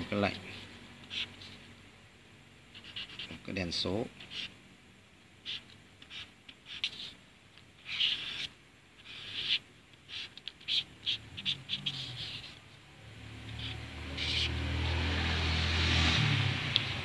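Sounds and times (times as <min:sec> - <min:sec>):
marker squeaking on whiteboard: 0:00.5 - 0:01.7, 0:02.7 - 0:03.4, 0:04.2 - 0:04.6, 0:05.4 - 0:12.7, 0:13.4 - 0:14.8.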